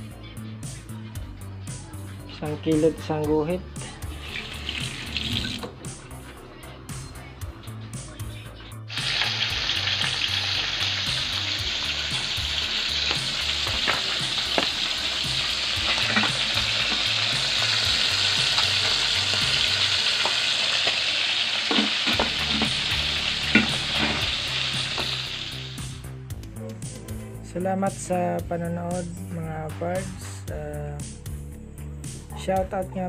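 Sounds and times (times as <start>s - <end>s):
fish sizzling in hot oil: 4.2s - 5.6s, 8.9s - 26.0s.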